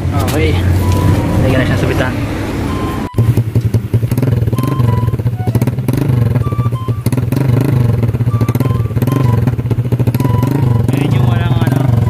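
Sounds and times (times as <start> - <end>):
scooter engine idling: 2.7 - 12.0.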